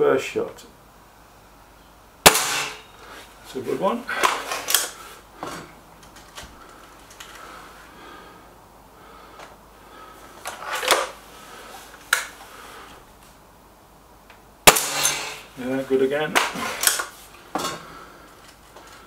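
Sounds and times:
air rifle mechanical clicks: 0:04.2 - 0:05.0, 0:10.4 - 0:11.2, 0:12.0 - 0:12.4, 0:16.3 - 0:17.2.

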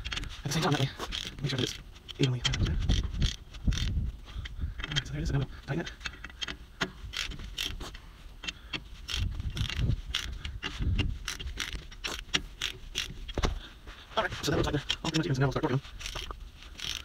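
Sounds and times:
ratchet wrench clicking: 0:00.0 - 0:04.0, 0:06.0 - 0:13.2, 0:16.0 - 0:17.0.

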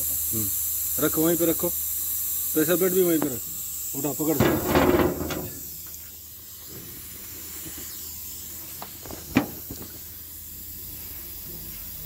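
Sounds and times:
steady hiss: 0:00.0 - 0:12.0
metal parts tapping and knocking: 0:04.3 - 0:05.7.

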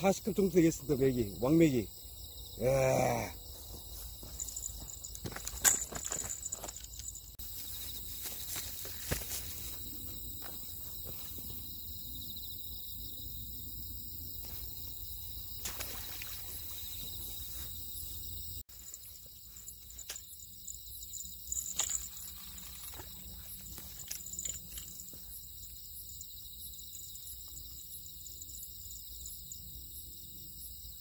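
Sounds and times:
insects chirring: 0:00.0 - 0:31.0
gear knocking and rustling: 0:04.2 - 0:07.2.

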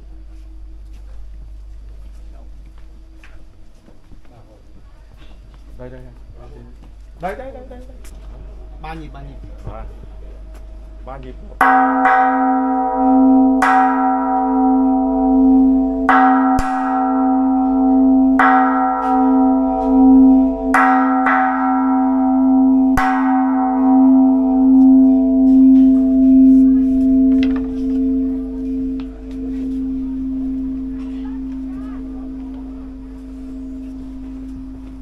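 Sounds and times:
bell tolling with long hum: 0:08.3 - 0:35.0.

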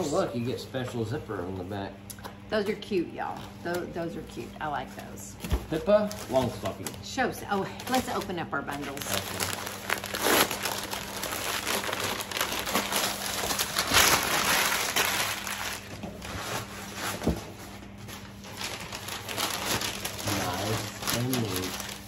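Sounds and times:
paper rustling and crinkling: 0:04.8 - 0:07.0, 0:07.7 - 0:22.0.

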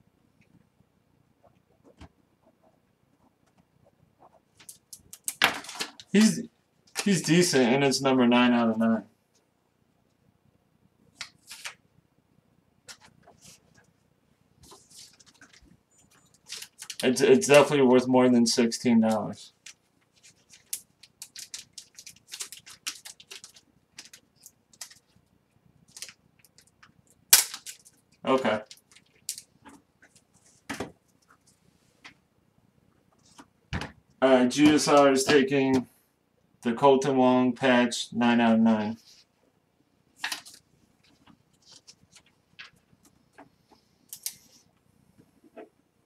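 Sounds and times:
plastic card holders clicking and crinkling: 0:04.6 - 0:06.3, 0:19.6 - 0:25.1, 0:40.2 - 0:42.8.

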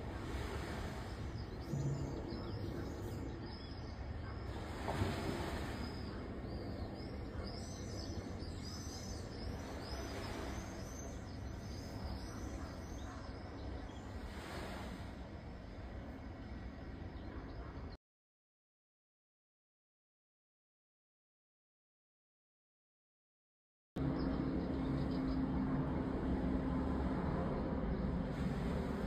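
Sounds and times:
small birds chirping: 0:00.0 - 0:14.3
steady low rumble: 0:00.0 - 0:17.9, 0:24.0 - 0:29.0.

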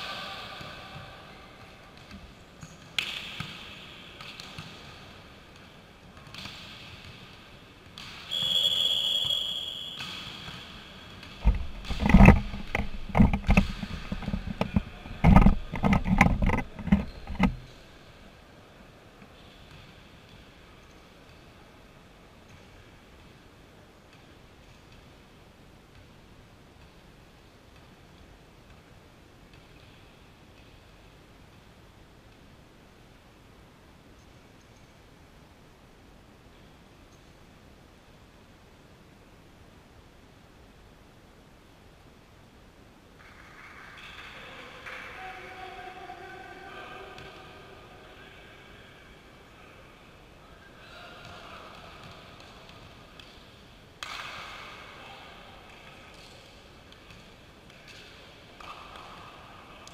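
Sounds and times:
referee's whistle blast: 0:08.3 - 0:10.3.

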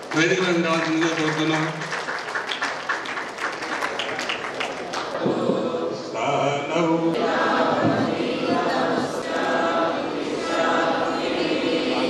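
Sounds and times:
voices chanting in unison: 0:05.2 - 0:12.0.

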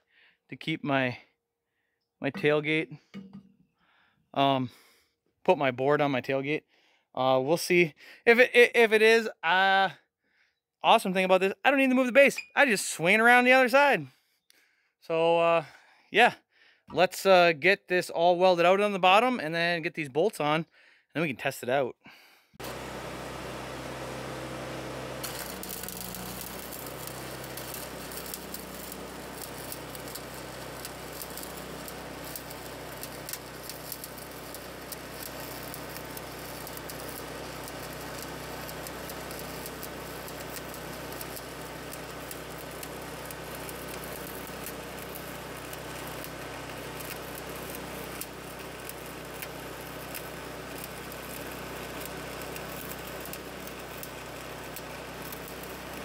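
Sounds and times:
welding arc crackling: 0:22.6 - 0:56.0.

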